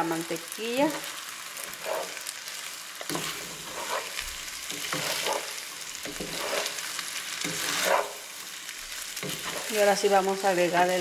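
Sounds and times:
food sizzling in frying pan: 0:00.0 - 0:11.0
wooden spatula scraping pan: 0:00.9 - 0:02.4, 0:03.0 - 0:08.3, 0:09.2 - 0:11.0.

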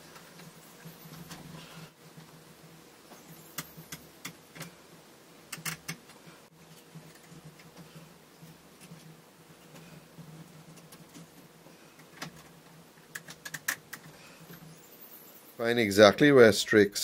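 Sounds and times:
wooden pieces clicking and tapping: 0:05.5 - 0:07.9, 0:12.0 - 0:14.6.

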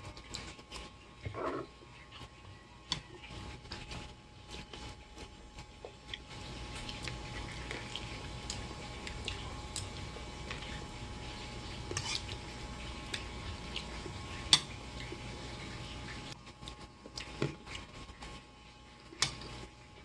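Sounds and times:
wet mouth eating sounds: 0:05.9 - 0:11.0.

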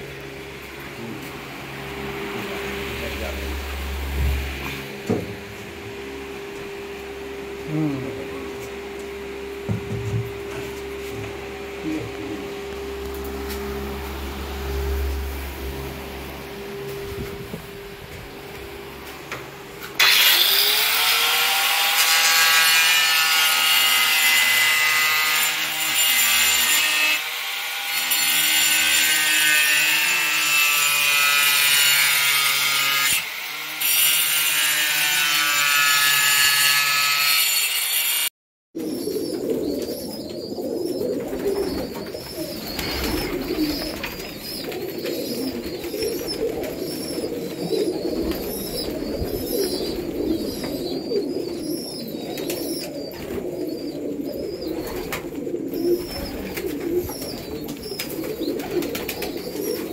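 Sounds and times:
pigeons cooing: 0:05.9 - 0:19.8, 0:38.8 - 0:59.9
angle grinder cutting: 0:19.0 - 0:38.3.

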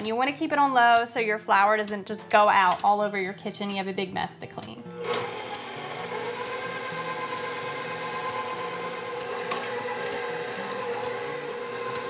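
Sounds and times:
stand mixer running: 0:05.0 - 0:12.0.

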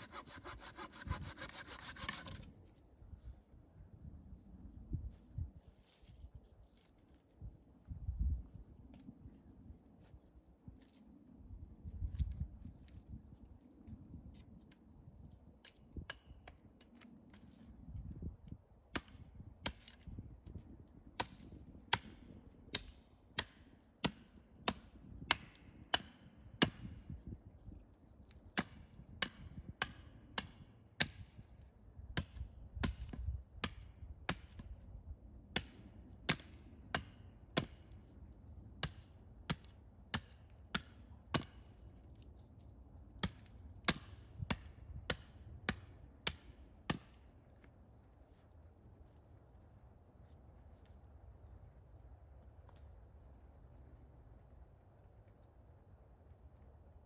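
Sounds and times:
chopping strikes on wood: 0:28.6 - 0:31.3, 0:35.6 - 0:37.8, 0:38.8 - 0:41.6, 0:43.2 - 0:47.2.

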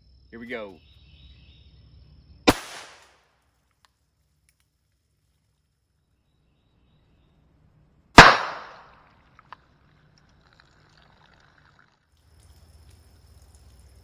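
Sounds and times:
gunshot crack: 0:02.5 - 0:03.2, 0:08.2 - 0:09.0.

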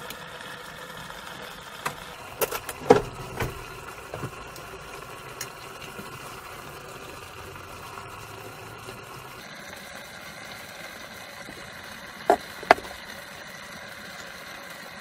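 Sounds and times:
gas burner hissing: 0:00.0 - 0:15.0
vegetables simmering in pot: 0:00.0 - 0:15.0
sharp knocks: 0:12.3 - 0:13.0.

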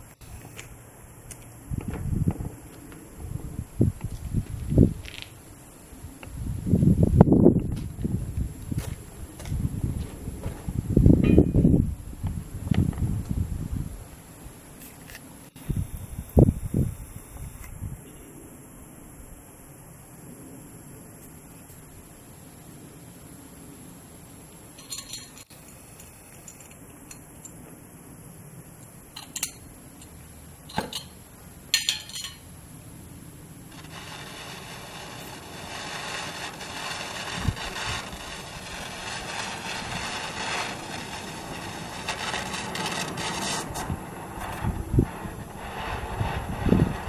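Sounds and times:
metallic clicks of torch fittings: 0:29.1 - 0:30.1
gas hissing from torch: 0:33.6 - 0:47.0.

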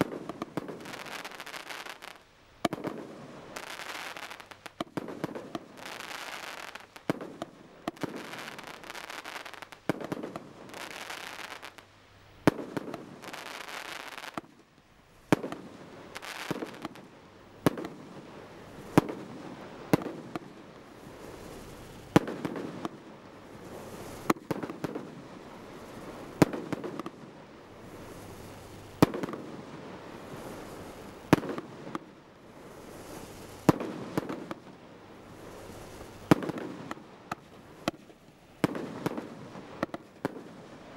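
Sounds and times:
firework bangs: 0:00.0 - 0:11.8, 0:12.4 - 0:14.5, 0:15.2 - 0:40.9
firework hissing: 0:00.0 - 0:11.8, 0:12.4 - 0:14.5, 0:15.2 - 0:17.1, 0:17.7 - 0:27.0, 0:27.7 - 0:40.9
firework pops: 0:00.0 - 0:11.8, 0:12.5 - 0:14.6, 0:15.3 - 0:18.1, 0:18.9 - 0:20.5, 0:21.9 - 0:23.0, 0:23.8 - 0:25.2, 0:26.4 - 0:27.2, 0:29.0 - 0:29.5, 0:31.3 - 0:32.1, 0:33.2 - 0:34.7, 0:35.9 - 0:40.6.

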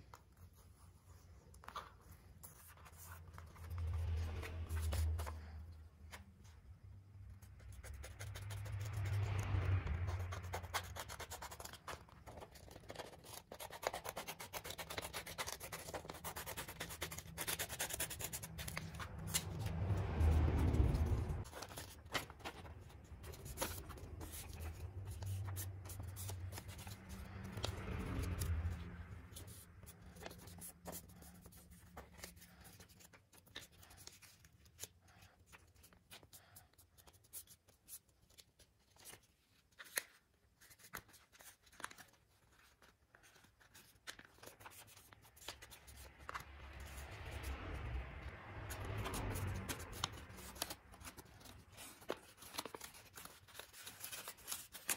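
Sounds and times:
paper rustling and creasing: 0:00.0 - 0:06.8, 0:10.0 - 0:47.8, 0:48.6 - 0:54.9
scissors cutting paper: 0:10.2 - 0:34.9, 0:48.7 - 0:54.9.

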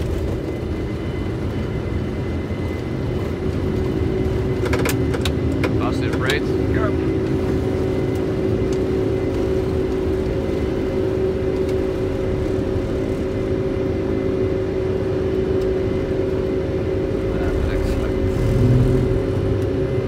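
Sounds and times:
low hum: 0:00.0 - 0:20.0
air rushing on flight deck: 0:16.2 - 0:20.0.

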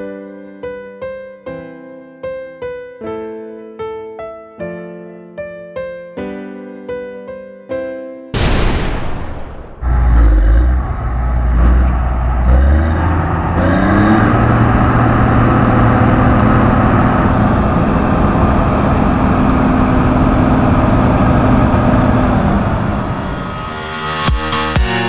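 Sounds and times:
combine harvester engine: 0:09.8 - 0:24.3
high whine: 0:14.2 - 0:25.0.

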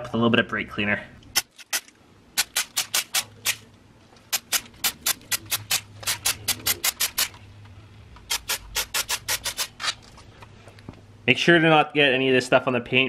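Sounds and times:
aerosol can spraying bursts: 0:04.3 - 0:07.3, 0:08.3 - 0:09.7.

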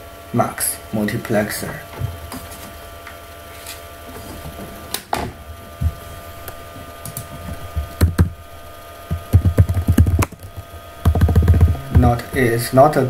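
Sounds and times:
faint steady hum: 0:00.0 - 0:13.0
keyboard keys clicking: 0:09.1 - 0:12.0.

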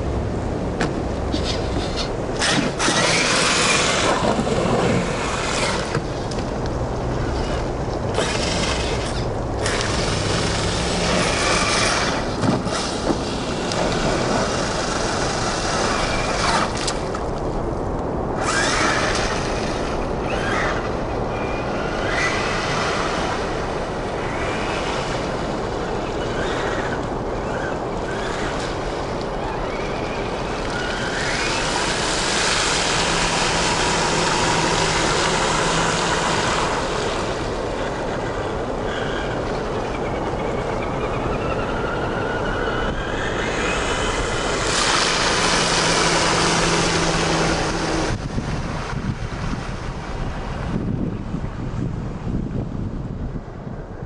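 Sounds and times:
tyres splashing through puddle: 0:01.3 - 0:06.4, 0:29.6 - 0:39.3, 0:42.2 - 0:49.6
rc car electric motors whining: 0:01.4 - 0:06.0, 0:07.3 - 0:17.0, 0:18.4 - 0:23.6, 0:25.8 - 0:37.4, 0:38.1 - 0:48.2.

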